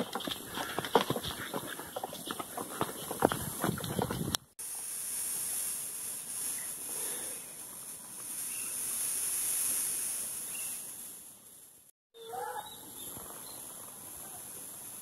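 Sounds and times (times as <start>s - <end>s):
high-pitched insect hiss: 4.6s - 11.9s, 13.3s - 15.0s.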